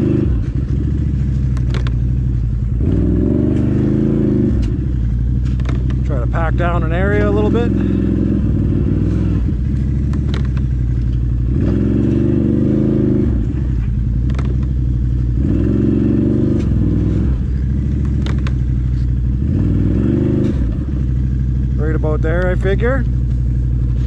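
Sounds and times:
atv engine revving: 0:00.0 - 0:24.0
sharp clicks and knocks: 0:00.4 - 0:02.4, 0:04.5 - 0:06.1, 0:09.6 - 0:12.3, 0:13.7 - 0:14.8, 0:17.9 - 0:19.0.

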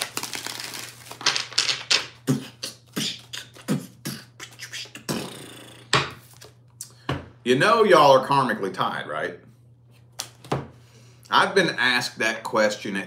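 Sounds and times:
soft slaps and swishes of cards: 0:10.0 - 0:10.6.

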